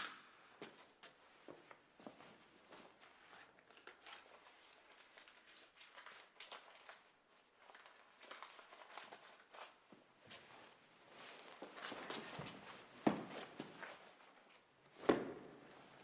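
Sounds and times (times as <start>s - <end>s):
clothing and bedding rustling: 9.0s - 16.0s.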